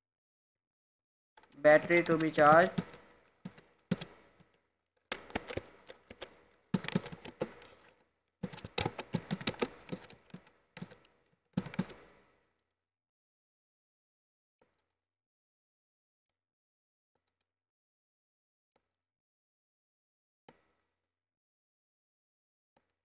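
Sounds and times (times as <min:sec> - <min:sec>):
typing on keyboard: 0:01.4 - 0:04.2, 0:05.1 - 0:12.1.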